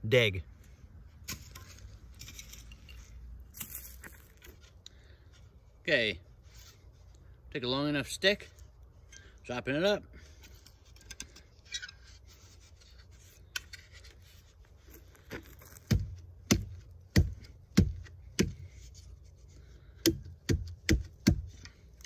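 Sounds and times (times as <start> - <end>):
dull knocks of wooden stick: 15.8 - 18.7, 20.0 - 21.7.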